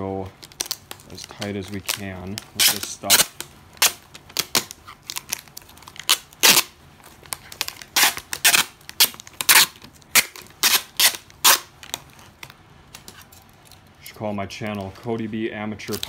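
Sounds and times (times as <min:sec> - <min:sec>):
packing tape ripping off roll: 0:00.3 - 0:13.5.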